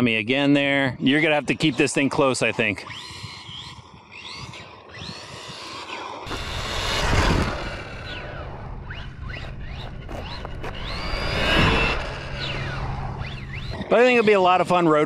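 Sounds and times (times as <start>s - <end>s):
electric rc car motor whine: 2.7s - 14.6s
tyre and drivetrain noise: 2.7s - 15.0s.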